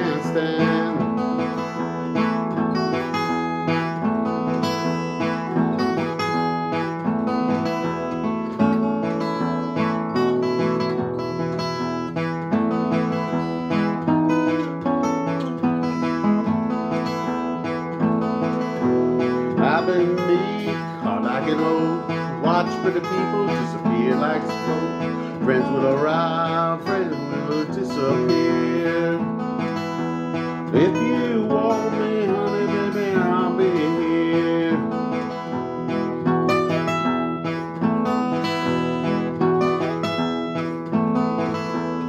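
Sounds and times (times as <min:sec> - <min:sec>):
acoustic guitar strumming: 0:00.0 - 0:42.0.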